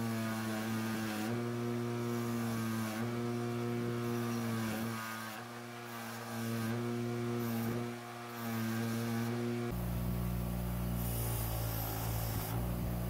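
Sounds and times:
bench grinder motor hum: 0:00.0 - 0:13.0
wire wheel hissing on metal: 0:10.8 - 0:13.0.

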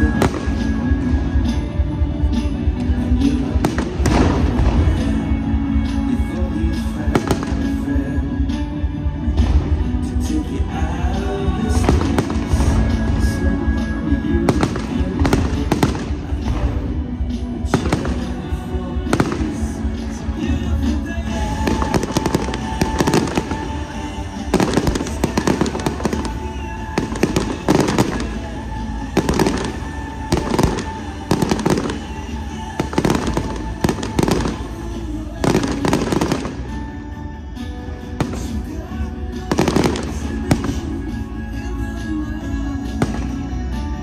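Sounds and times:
music playing: 0:00.0 - 0:44.0
fireworks bangs: 0:11.6 - 0:20.7, 0:21.3 - 0:36.9, 0:39.5 - 0:41.2.

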